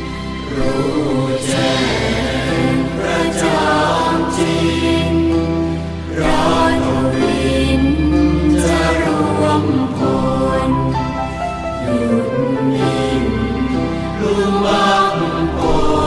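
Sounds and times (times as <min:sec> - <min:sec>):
choir singing long held notes: 0:00.0 - 0:16.0
instrumental accompaniment with bass: 0:00.0 - 0:16.0.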